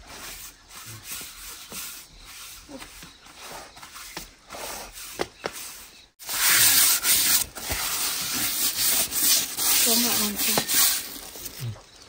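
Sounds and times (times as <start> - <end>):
flour rubbing in stone mortar: 0.1 - 11.3.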